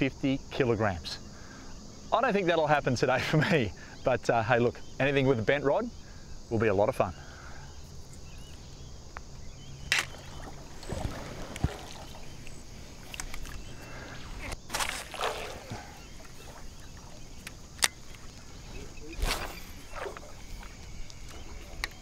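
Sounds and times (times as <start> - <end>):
water splashing around paddleboard: 9.8 - 22.0.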